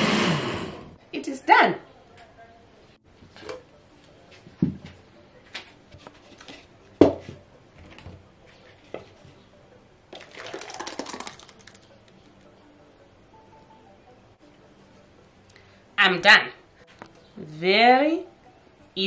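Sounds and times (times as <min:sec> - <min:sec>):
puree pouring into plastic tub: 0:10.1 - 0:11.9.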